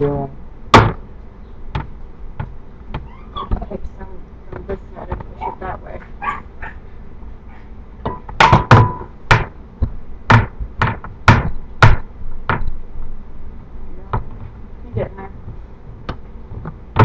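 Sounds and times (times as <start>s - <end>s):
knocks and thuds on metal pan: 8.0s - 9.5s.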